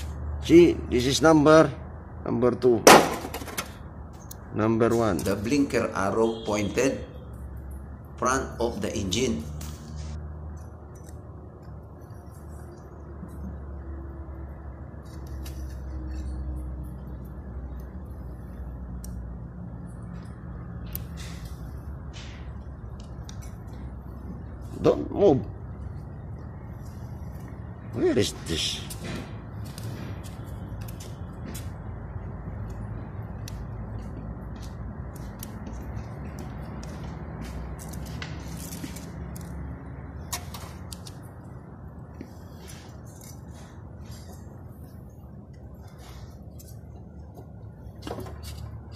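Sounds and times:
steady background noise: 0:00.0 - 0:48.9
light metallic clicks and scrapes: 0:14.9 - 0:24.2, 0:35.1 - 0:41.4, 0:42.1 - 0:48.9.

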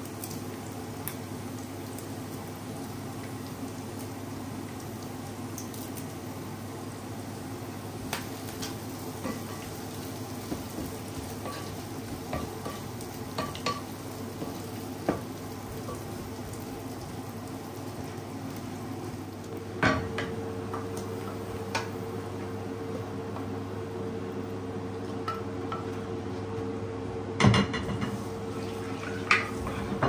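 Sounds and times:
olives sizzling in a pan: 0:00.0 - 0:30.0
spoon tapping a pan: 0:10.4 - 0:15.3
wooden spoon scraping a pan: 0:28.0 - 0:30.0.

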